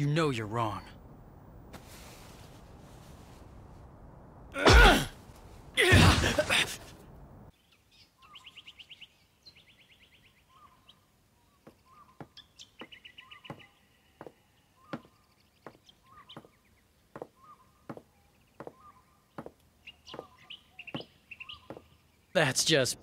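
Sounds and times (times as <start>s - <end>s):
birds chirping: 0.0s - 1.7s, 5.2s - 23.0s
footsteps on wooden boards: 11.6s - 18.8s, 19.4s - 21.9s.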